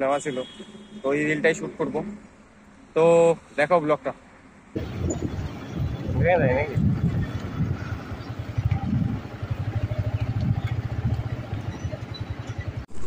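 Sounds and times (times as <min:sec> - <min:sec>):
vehicle engine pulsing: 0:04.8 - 0:13.0.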